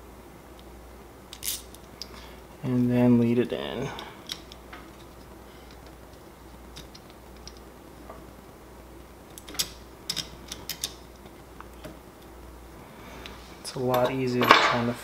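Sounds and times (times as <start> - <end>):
small screws clicking: 1.3 - 2.1, 9.3 - 11.0.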